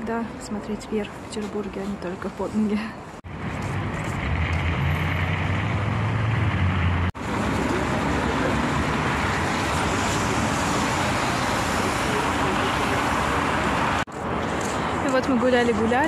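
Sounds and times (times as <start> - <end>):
city road traffic: 0.0 - 16.0.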